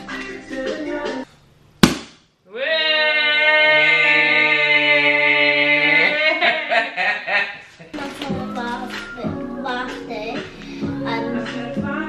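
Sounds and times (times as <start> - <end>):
music: 0.0 - 1.3, 8.0 - 12.0.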